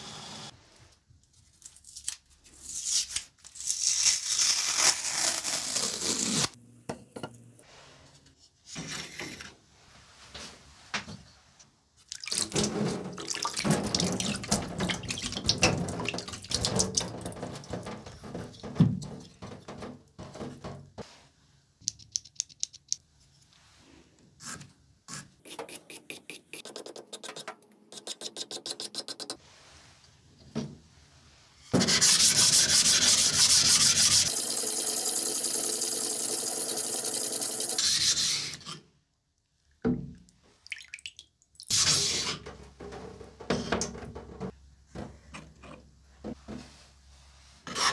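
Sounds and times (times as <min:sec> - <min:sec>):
masking tape peeled and torn: 0:01.6 - 0:06.6.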